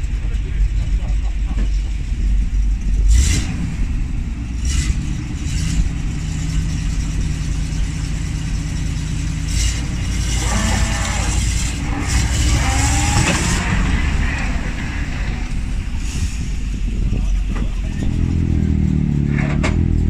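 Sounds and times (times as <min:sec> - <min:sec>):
truck engine running under load: 0:00.0 - 0:20.0.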